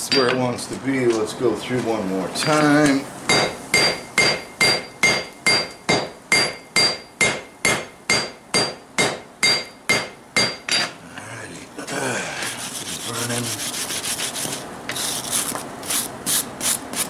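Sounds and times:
hammer striking steel on anvil: 2.4 - 10.9
anvil ringing: 3.3 - 10.9.

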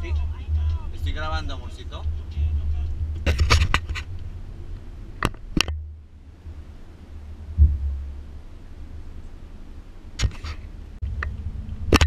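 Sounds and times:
car driving rumble inside cabin: 0.0 - 10.0
low thump: 7.5 - 8.3.

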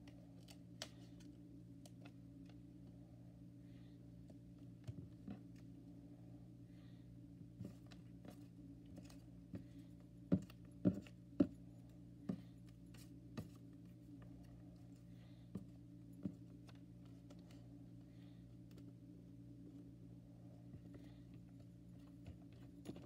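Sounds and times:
steady low hum: 0.0 - 23.0
fingers tapping paper on notebook: 9.0 - 11.6.

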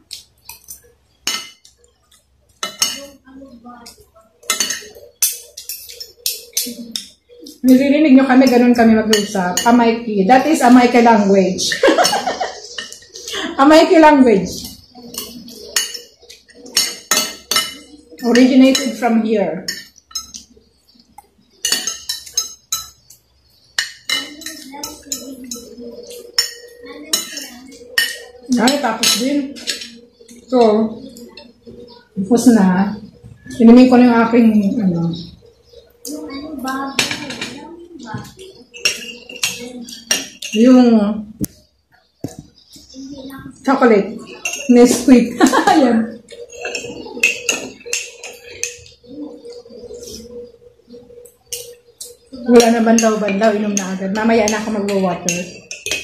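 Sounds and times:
cutlery clinking on glass plate: 0.1 - 3.2, 3.8 - 7.8, 8.4 - 11.0, 11.7 - 13.4, 14.6 - 20.6, 21.2 - 30.4, 36.9 - 40.8, 44.2 - 49.0, 51.0 - 56.0
cutlery scraping glass plate: 38.7 - 40.7, 44.2 - 49.0, 52.6 - 56.0.

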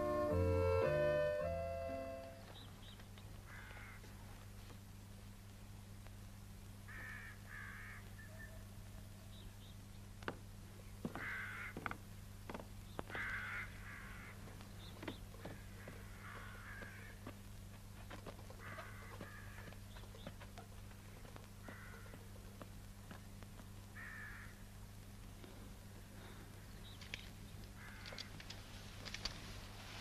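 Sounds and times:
steady low hum: 0.0 - 30.0
crows cawing: 3.4 - 4.2, 6.9 - 8.2, 11.0 - 12.0, 13.0 - 17.4, 18.5 - 19.8, 21.6 - 22.3, 23.9 - 24.7, 27.8 - 28.5
faint clicks: 26.5 - 29.4.

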